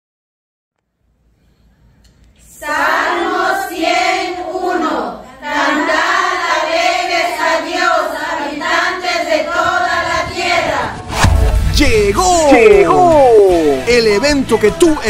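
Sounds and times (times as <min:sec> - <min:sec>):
women's choir singing: 0:02.5 - 0:11.2.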